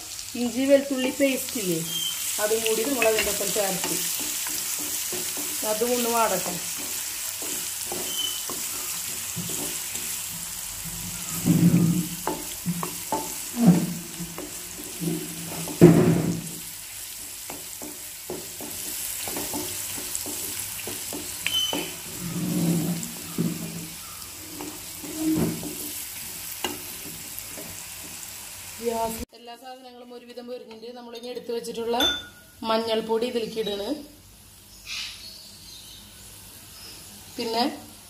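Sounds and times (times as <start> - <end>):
food sizzling in hot oil: 0.0 - 29.3, 32.0 - 38.0
wooden spatula scraping pan: 1.8 - 16.6, 17.5 - 28.3.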